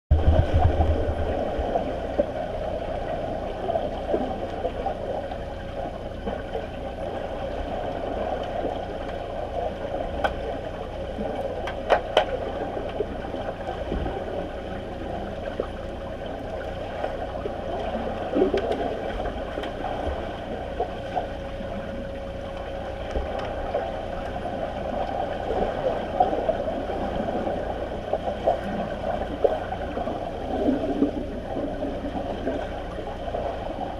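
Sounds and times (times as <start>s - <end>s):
faint steady hum: 0.1s - 33.9s
underwater rushing and gurgling: 0.1s - 33.9s.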